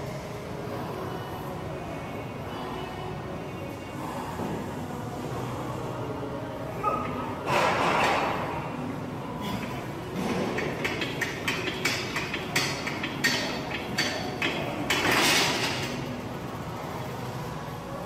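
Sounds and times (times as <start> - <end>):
barbell clanking: 9.5 - 16.2.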